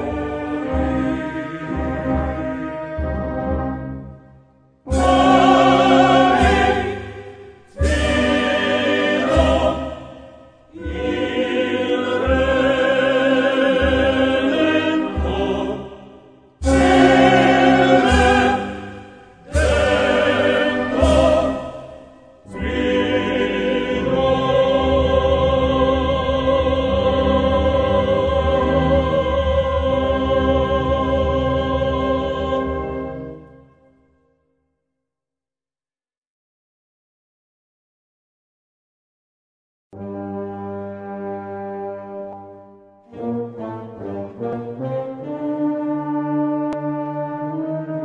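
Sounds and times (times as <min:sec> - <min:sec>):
choral singing with vibrato: 0:00.0 - 0:03.9, 0:04.8 - 0:33.7
orchestral accompaniment: 0:00.0 - 0:34.0, 0:40.0 - 0:48.0.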